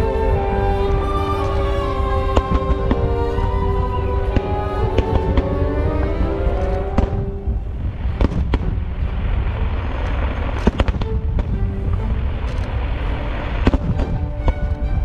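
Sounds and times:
orchestral music: 0.0 - 15.0
fireworks bangs and crackling: 7.0 - 11.6.

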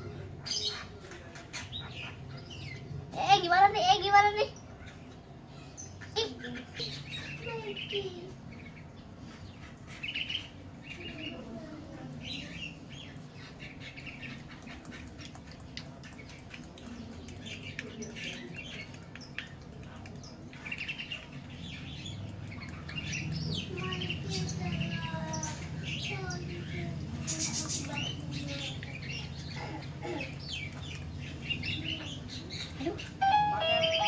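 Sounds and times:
young lovebird chirping: 32.6 - 34.0.

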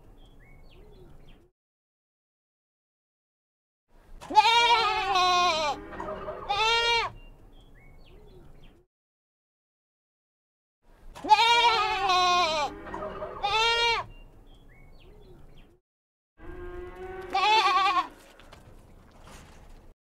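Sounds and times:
goats bleating: 4.2 - 7.2, 11.2 - 14.1, 16.7 - 18.7.

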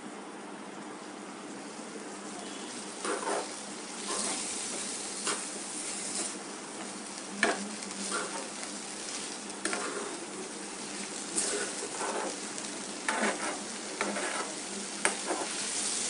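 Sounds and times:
vegetables sizzling in oil: 1.6 - 16.0
metal spatula scraping pan: 2.5 - 6.4, 7.4 - 16.0.

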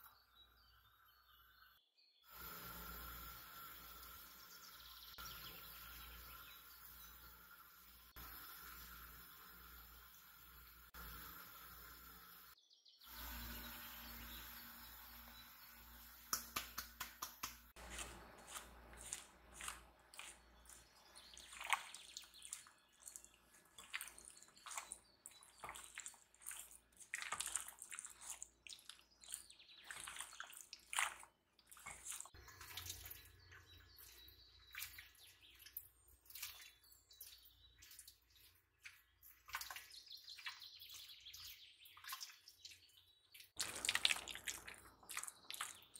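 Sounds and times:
water dripping and splashing: 18.5 - 45.9.

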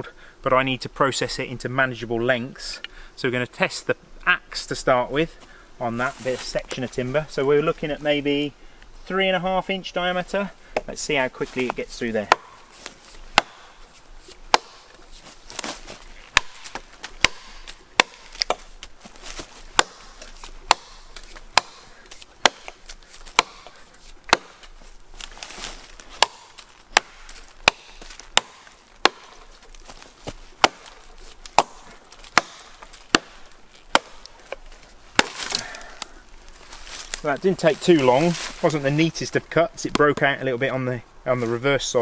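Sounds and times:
axe chopping into log: 11.7 - 13.8, 14.5 - 15.0, 15.6 - 18.7, 19.7 - 34.3, 35.1 - 35.7.

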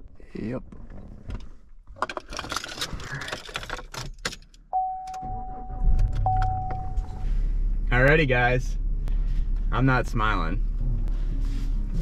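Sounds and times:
things rattling in a vehicle cab: 0.4 - 7.2
steady electronic beep: 4.7 - 7.2
low rumble: 5.3 - 12.0.

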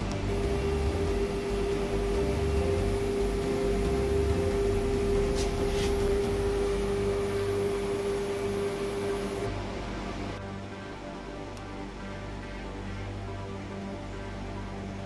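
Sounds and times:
cnc router motor whine: 0.0 - 9.6
low hum: 0.0 - 10.6.

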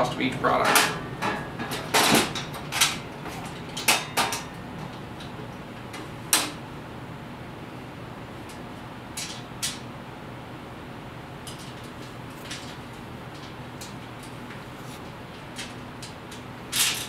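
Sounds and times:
metal knocks and clanks: 0.5 - 4.6.

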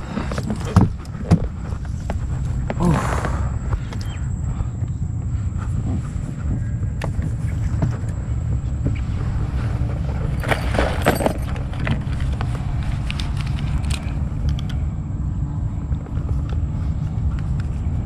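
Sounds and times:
knocks and rustles in a boat: 0.0 - 2.8, 5.1 - 14.1
steady low rumble: 0.0 - 18.0.

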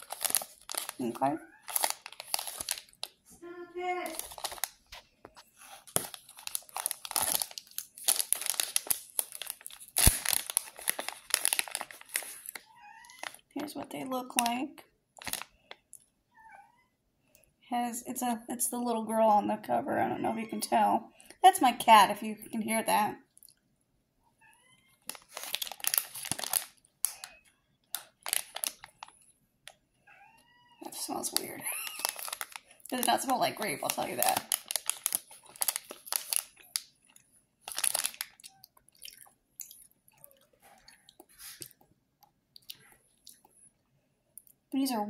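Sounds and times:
plastic wrapper crinkling: 0.0 - 3.3, 4.0 - 16.1, 25.0 - 29.8, 30.8 - 43.5
wrapper sharp snap: 7.3 - 10.7.

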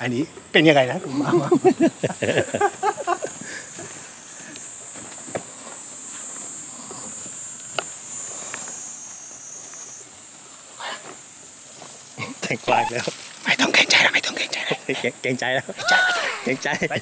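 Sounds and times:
insects buzzing: 0.0 - 17.0.

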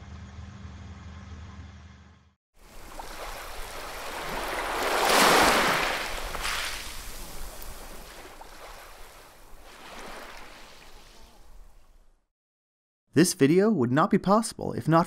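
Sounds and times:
rushing water splash: 2.6 - 11.2.

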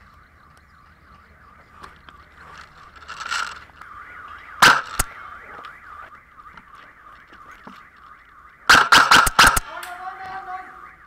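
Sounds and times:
warbling background tone: 0.0 - 9.6
airsoft rifle firing: 4.6 - 5.1, 8.7 - 9.8.

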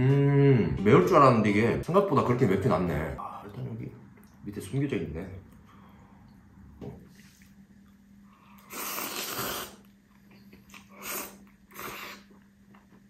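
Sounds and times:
slurping noodles: 8.5 - 9.9, 10.7 - 12.4.

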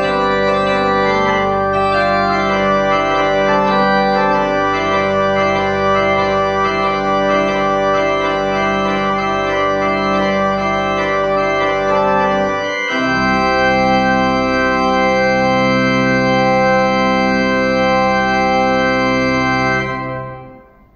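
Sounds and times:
organ sustained chords: 0.0 - 20.9.

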